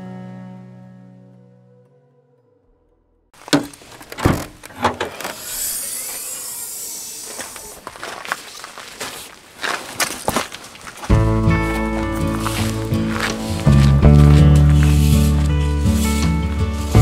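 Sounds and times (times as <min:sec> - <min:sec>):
camping gear rustling: 0:03.4 - 0:05.6, 0:07.1 - 0:17.0
intro music: 0:11.1 - 0:17.0.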